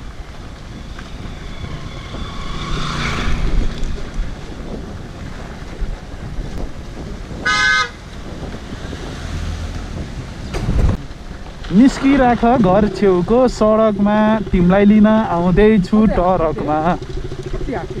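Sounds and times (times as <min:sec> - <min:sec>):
motorcycle engine rumbling: 0:00.0 - 0:18.0
vehicle horn toot: 0:07.4 - 0:08.0.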